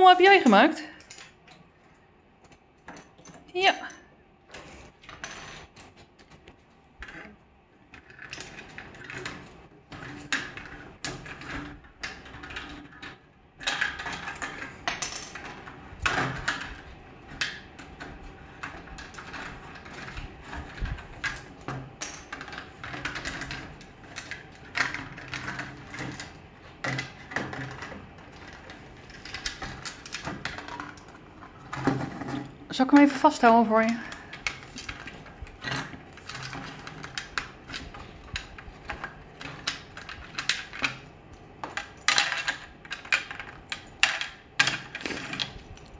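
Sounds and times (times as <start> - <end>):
plastic bricks clicking and clattering: 4.6 - 45.9.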